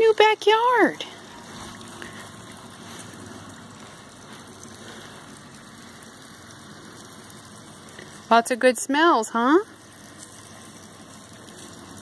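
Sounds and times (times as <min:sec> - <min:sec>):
faint outdoor background noise: 0:00.0 - 0:12.0.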